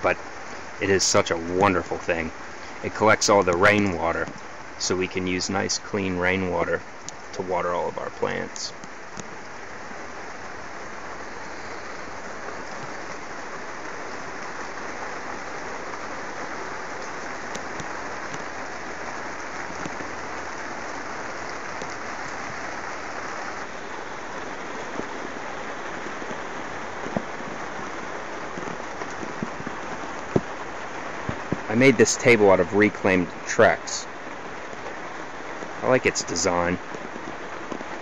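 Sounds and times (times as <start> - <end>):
rain on plastic sheeting: 0.0 - 38.0
small taps: 30.2 - 30.5.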